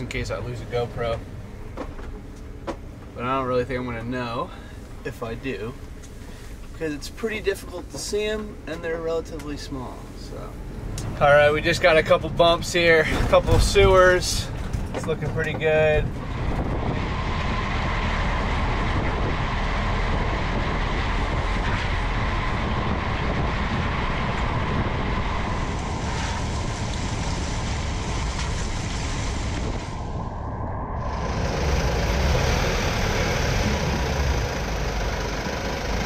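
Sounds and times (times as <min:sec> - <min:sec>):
low road rumble: 0:00.0 - 0:36.0
tyres on wet pavement: 0:12.8 - 0:30.0, 0:31.2 - 0:36.0.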